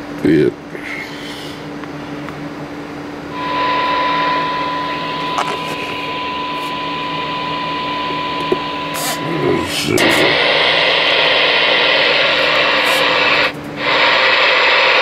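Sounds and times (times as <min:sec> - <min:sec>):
steady high test tone: 0:03.3 - 0:14.6
radio speaker hum: 0:03.3 - 0:15.0
receiver hiss: 0:03.3 - 0:15.0.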